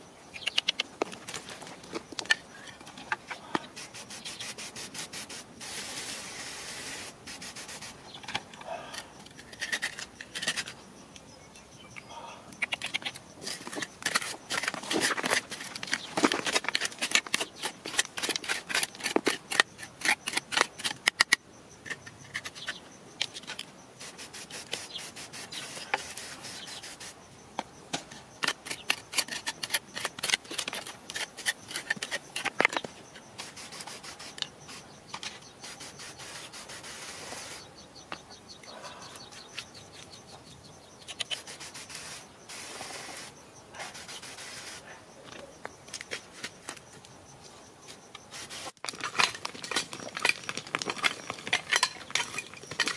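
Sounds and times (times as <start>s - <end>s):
hand scraping gritty soil: 0.4s - 10.9s, 12.6s - 27.2s, 28.0s - 37.7s, 41.1s - 44.9s, 47.9s - 52.9s.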